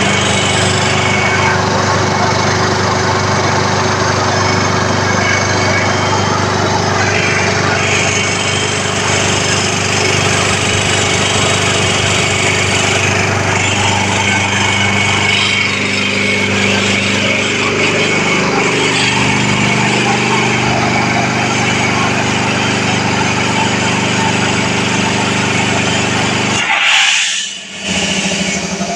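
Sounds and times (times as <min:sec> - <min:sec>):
low hum: 0:00.0 - 0:22.4
air compressor running: 0:00.0 - 0:28.9.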